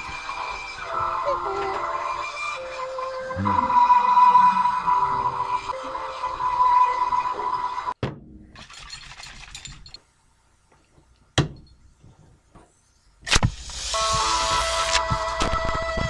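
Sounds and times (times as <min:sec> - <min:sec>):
background music: 0:00.0 - 0:08.0, 0:13.8 - 0:16.0.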